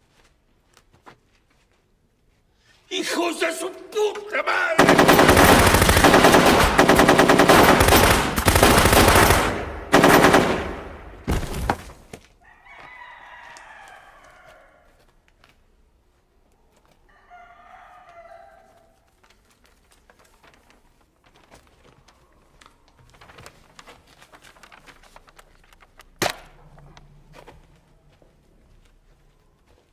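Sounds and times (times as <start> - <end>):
rooster crowing: 12.4 - 15.1, 17.1 - 19.1.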